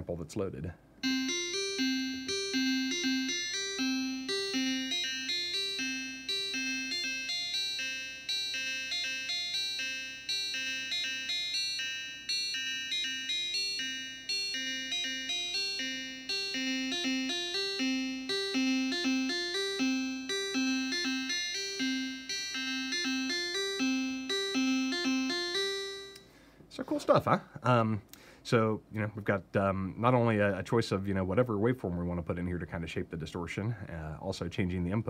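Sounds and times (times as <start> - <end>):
synthesizer melody of plucky notes: 1.0 - 26.3.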